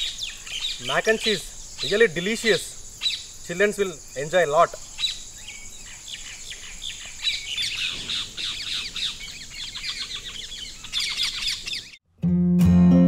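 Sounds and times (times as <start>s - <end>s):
high insect drone: 0.0s - 11.8s
birds chirping: 0.0s - 12.0s.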